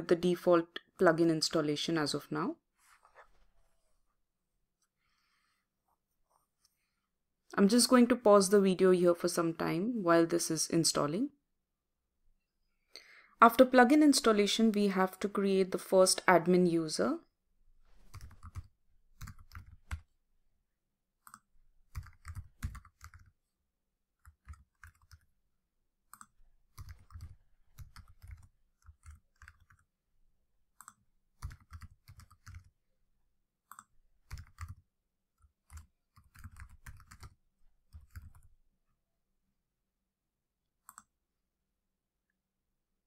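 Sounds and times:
keyboard typing: 18.0 - 20.1, 21.2 - 23.4, 24.2 - 25.3, 26.1 - 29.9, 30.7 - 32.7, 33.6 - 38.5.

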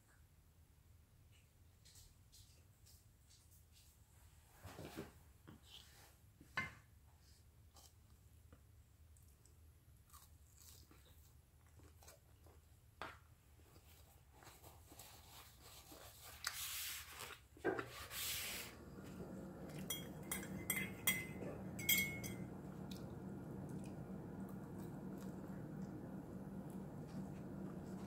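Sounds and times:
paper napkin rustling: 14.2 - 19.7
tableware clinking on ceramic: 19.6 - 22.7.

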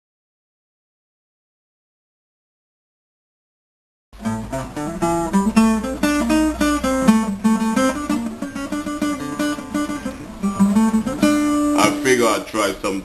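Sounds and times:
fingerstyle acoustic guitar: 4.2 - 12.5.

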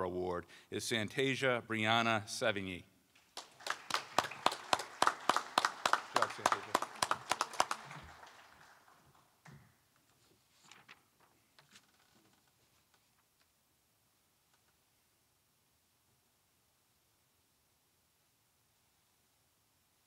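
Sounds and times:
small group clapping: 3.2 - 9.8.

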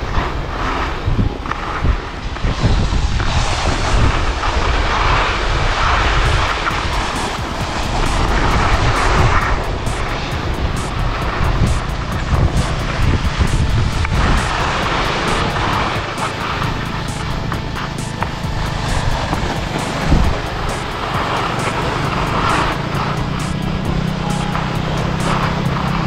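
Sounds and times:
skis scraping over snow: 0.0 - 26.0
wind on microphone: 0.0 - 26.0
fast light ticking: 6.0 - 26.0.

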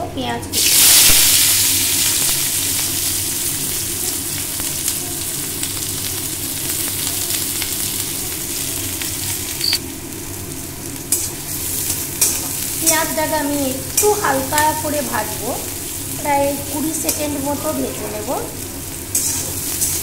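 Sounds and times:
onion sizzling in oil: 0.5 - 20.0
spatula scraping pan: 19.1 - 20.0.

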